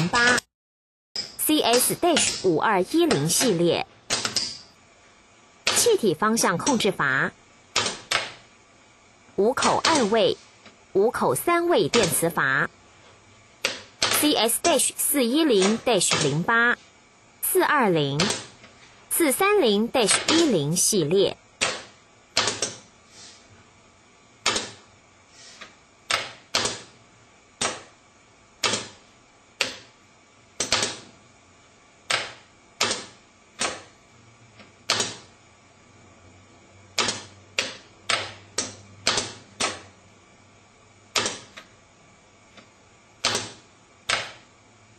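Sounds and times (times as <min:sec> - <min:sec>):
solenoid valves clicking: 0:41.1 - 0:41.7.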